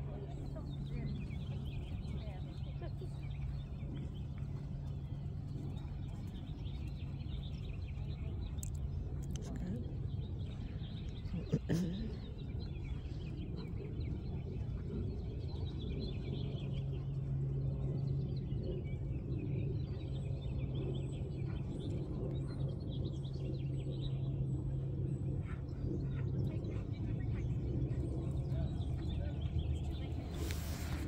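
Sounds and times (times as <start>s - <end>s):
low background rumble: 0.0s - 31.0s
small birds chirping: 0.0s - 31.0s
steady low hum: 0.0s - 31.0s.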